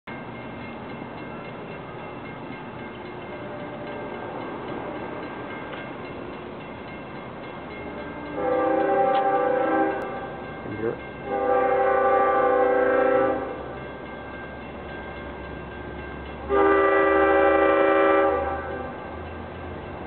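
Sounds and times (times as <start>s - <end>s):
locomotive horn blast: 8.0s - 10.2s, 11.2s - 13.7s, 16.5s - 19.0s.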